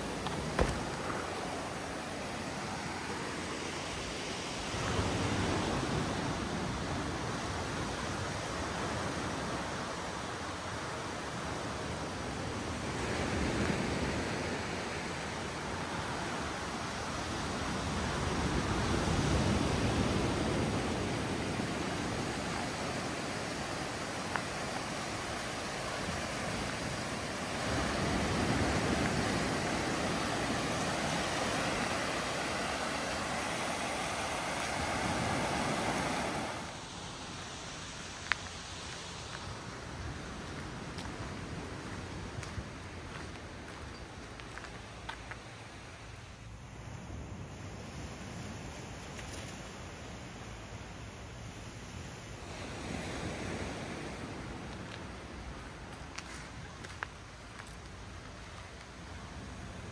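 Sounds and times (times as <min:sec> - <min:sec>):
wind: 0:00.0 - 0:59.9
surf rushing: 0:12.4 - 0:40.9.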